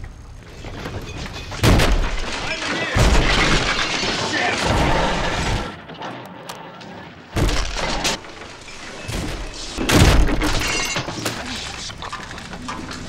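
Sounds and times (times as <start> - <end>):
crashes with glass breaking: 1.0 - 5.8, 7.4 - 11.5.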